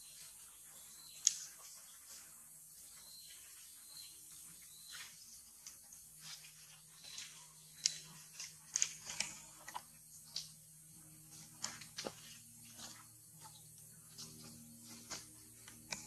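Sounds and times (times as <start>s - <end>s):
faint low hum: 0.0s - 16.0s
monkeys crunching food: 5.6s - 16.0s.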